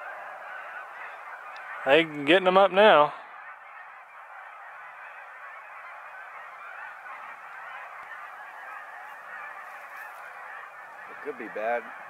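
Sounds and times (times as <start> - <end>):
geese honking in flight: 0.0 - 12.0.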